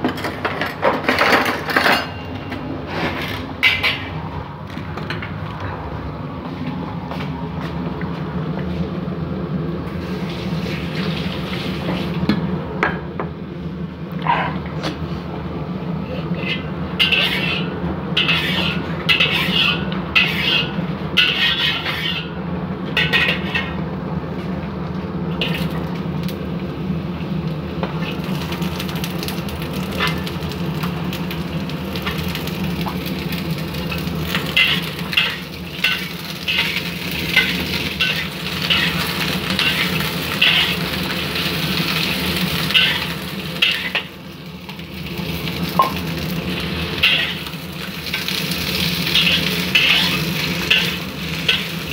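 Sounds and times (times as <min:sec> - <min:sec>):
steady low hum: 0:00.1 - 0:51.9
onions sizzling in oil: 0:09.9 - 0:12.3, 0:16.0 - 0:23.8, 0:25.3 - 0:51.9
metal spatula scraping pan: 0:16.2 - 0:22.4, 0:23.0 - 0:23.8, 0:34.5 - 0:40.8, 0:42.7 - 0:44.1, 0:47.0 - 0:47.5, 0:49.1 - 0:51.7.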